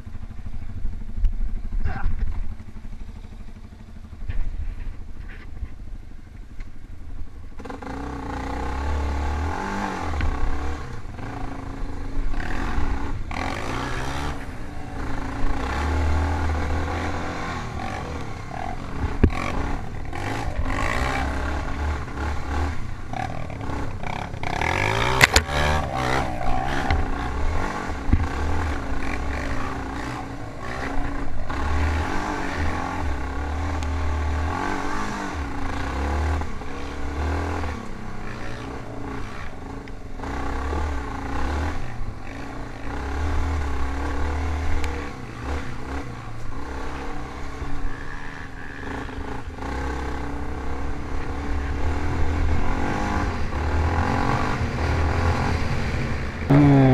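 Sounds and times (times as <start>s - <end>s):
off-road engine revving: 0.0s - 56.9s.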